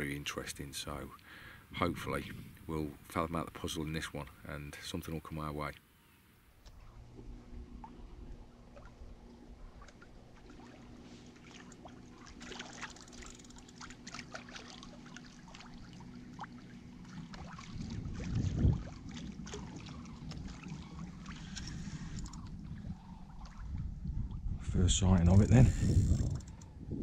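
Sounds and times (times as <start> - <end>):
low steady hum: 0.0 - 27.0
water lapping against boat hull: 6.6 - 24.6, 25.3 - 26.8.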